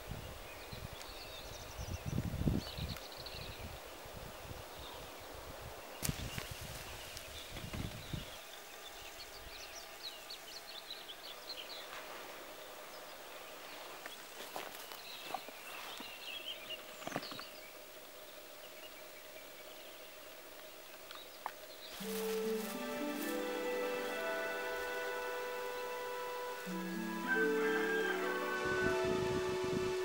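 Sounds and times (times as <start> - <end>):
small birds chirping: 0.0 - 27.3.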